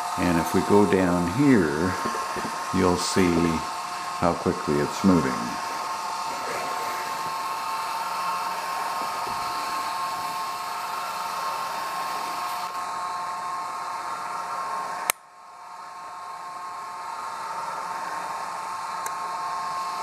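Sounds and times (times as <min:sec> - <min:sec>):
sharp click: 0:15.0 - 0:15.2.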